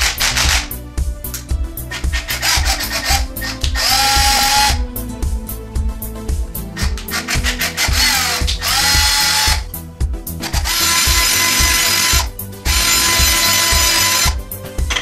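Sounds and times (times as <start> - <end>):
cordless drill whining: 0.0 - 0.7, 1.9 - 4.8, 6.8 - 9.7, 10.4 - 15.0.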